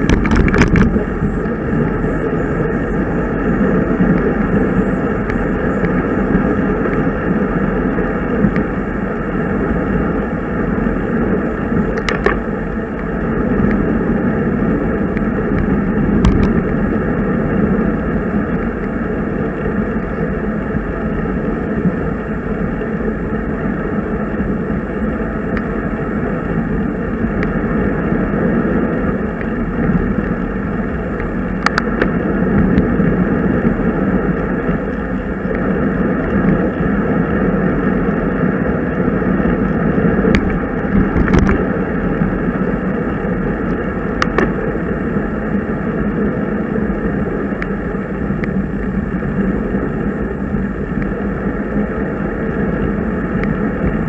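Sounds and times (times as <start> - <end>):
road noise while riding: 0.0 - 54.0
rushing wind: 0.0 - 54.0.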